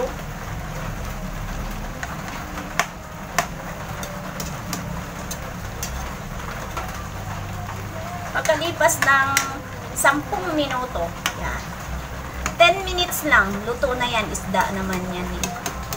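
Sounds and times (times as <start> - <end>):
stove low rumble: 0.0 - 15.9.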